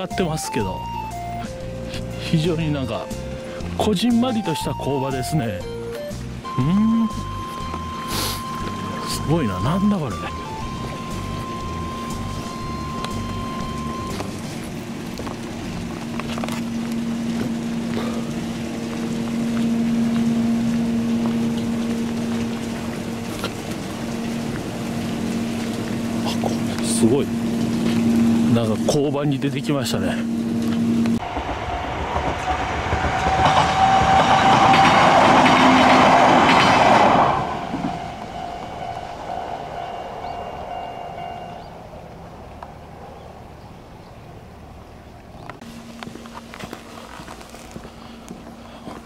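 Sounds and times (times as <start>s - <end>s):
higher machine tone: 0.0s - 42.2s
electric train passing: 0.0s - 49.0s
low machine hum: 0.6s - 32.5s.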